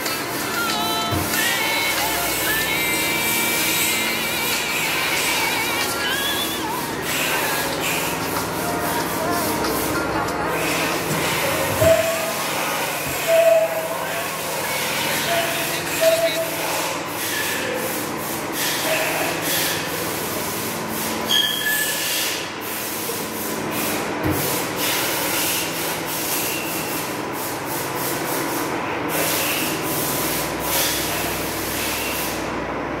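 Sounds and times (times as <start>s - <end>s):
press machine running: 0.0s - 21.3s.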